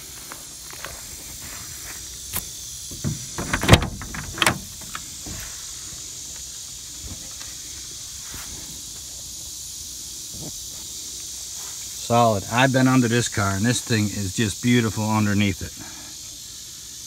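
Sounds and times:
steady high hiss: 0.0s - 17.0s
car door clicks and knocks: 2.9s - 5.4s.

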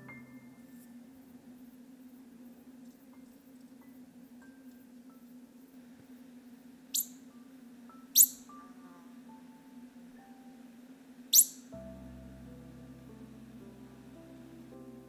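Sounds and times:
soft music with mallet notes: 0.0s - 1.1s, 7.2s - 11.0s, 11.7s - 15.0s
pika squeaking calls: 6.9s - 7.3s, 8.1s - 8.6s, 11.3s - 11.7s.

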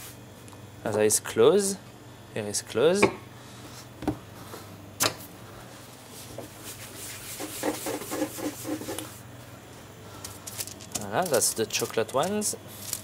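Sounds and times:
hands rubbing dough: 6.1s - 9.2s.

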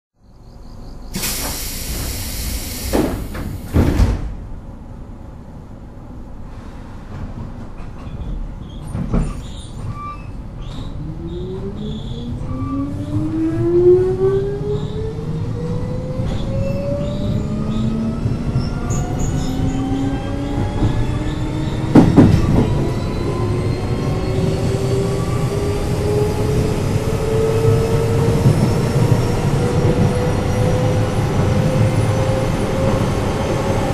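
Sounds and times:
train doors closing with hiss: 1.1s - 4.4s
train clunk: 1.2s - 4.6s, 21.8s - 22.9s.

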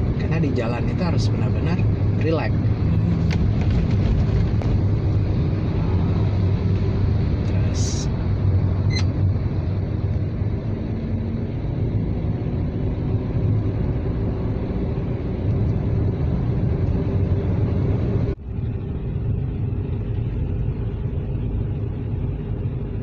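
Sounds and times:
car engine and road rumble: 0.0s - 23.0s.

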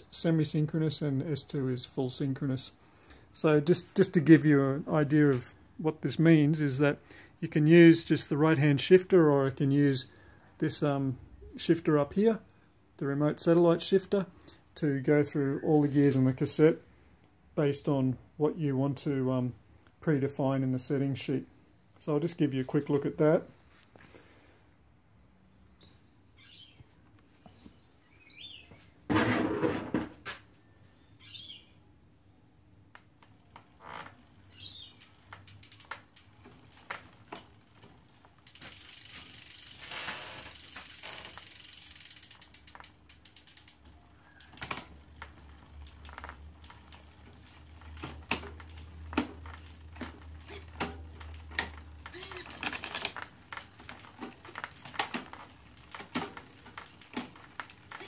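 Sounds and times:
derailleur motor whirring chirps: 31.1s - 31.7s, 33.2s - 58.0s
bicycle chain clicking: 33.0s - 58.0s
bicycle drivetrain running: 33.2s - 58.0s.

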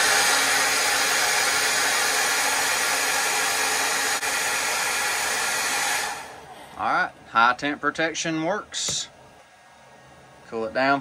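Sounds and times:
hot-air blower rushing air: 0.0s - 7.0s
faint motor hum: 0.0s - 11.0s.

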